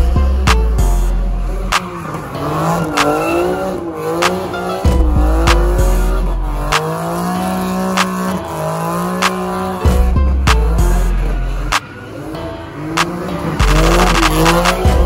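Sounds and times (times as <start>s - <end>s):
car engine revving: 0.0s - 15.0s
music with deep bass beat: 0.0s - 15.0s
tyres squealing: 0.4s - 15.0s.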